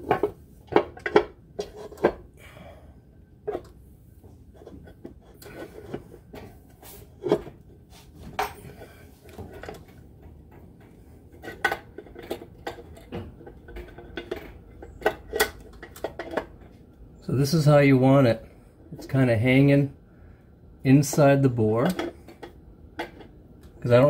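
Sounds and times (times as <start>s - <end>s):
metal clinks and knocks: 8.3s - 16.8s.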